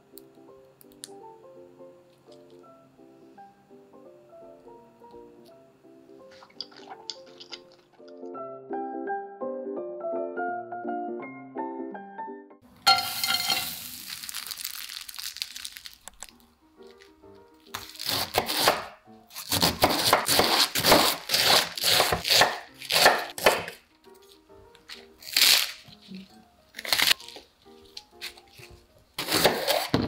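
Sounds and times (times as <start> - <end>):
soft piano music: 0.0 - 29.8
knife slicing cabbage on board: 17.7 - 23.8, 28.1 - 30.0.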